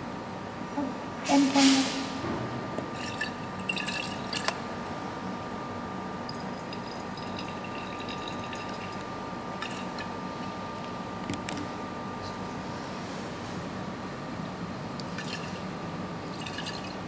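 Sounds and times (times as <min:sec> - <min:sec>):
liquid sloshing in flask: 0:02.9 - 0:04.6, 0:09.6 - 0:10.1, 0:15.2 - 0:15.6, 0:16.3 - 0:17.0.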